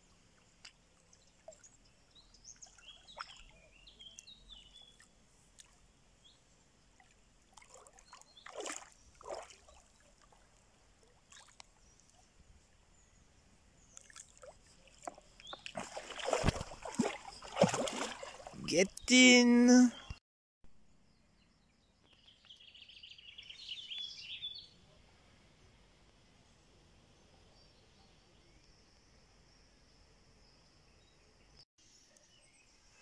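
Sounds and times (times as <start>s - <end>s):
water sloshing: 6.9s - 12.2s, 13.9s - 19.0s
fish splashing: 7.0s - 10.4s, 14.0s - 18.6s.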